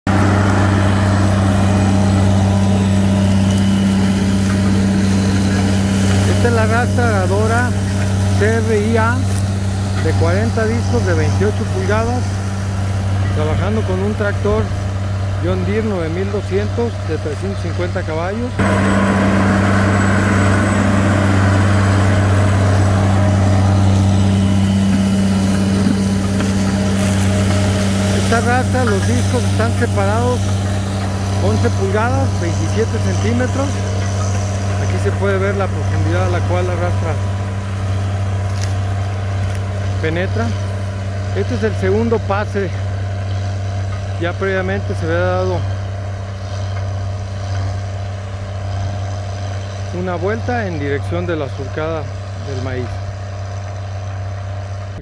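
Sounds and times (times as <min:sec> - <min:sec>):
tractor diesel engine droning: 0:00.0 - 0:55.0.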